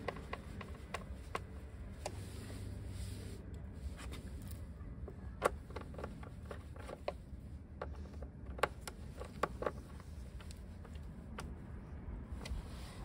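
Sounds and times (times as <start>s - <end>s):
small clicks and taps of parts: 0.0s - 2.2s, 3.5s - 11.8s
low steady rumble: 0.0s - 13.0s.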